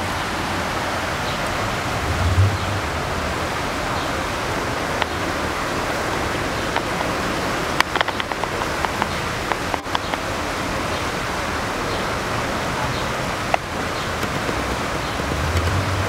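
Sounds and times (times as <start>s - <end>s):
heavy rain: 0.0s - 16.0s
storm water pouring down ramp: 0.0s - 16.0s
sharp taps: 6.7s - 7.2s, 7.8s - 10.3s.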